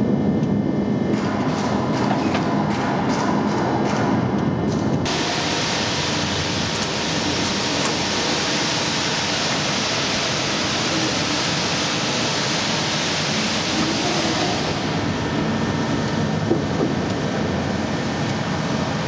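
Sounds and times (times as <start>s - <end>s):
loud air hiss: 5.1s - 15.6s.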